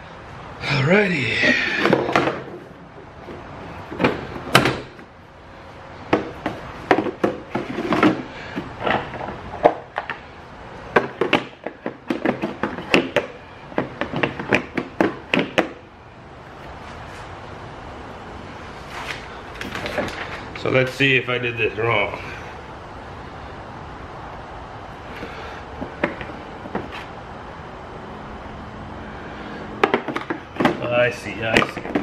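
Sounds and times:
hard plastic knocks and clicks: 0:06.1 - 0:10.2, 0:10.9 - 0:15.8, 0:25.8 - 0:27.0, 0:29.8 - 0:30.9.

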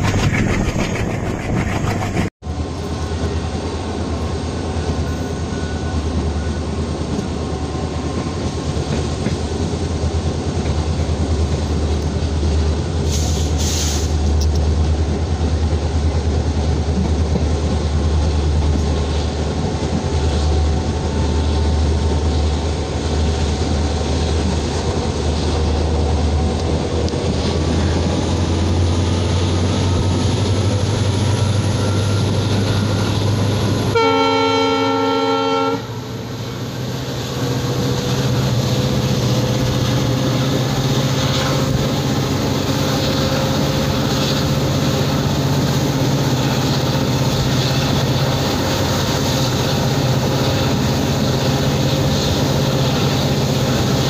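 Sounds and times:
locomotive engine drone: 0:00.0 - 0:54.0
train wind and rail rumble: 0:00.0 - 0:54.0
locomotive horn: 0:31.8 - 0:36.0.

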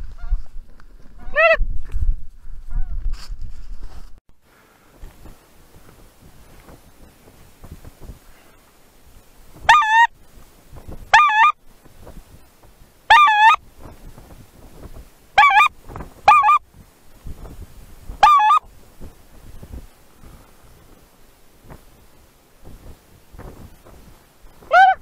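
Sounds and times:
goose honks: 0:09.6 - 0:10.1, 0:11.1 - 0:11.6, 0:13.1 - 0:13.6, 0:15.4 - 0:16.6, 0:18.2 - 0:18.7, 0:24.6 - 0:25.0.

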